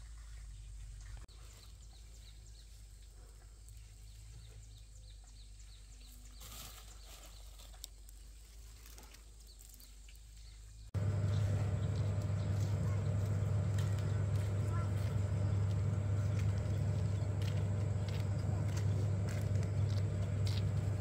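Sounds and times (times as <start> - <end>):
steady low hum: 10.9 - 21.0.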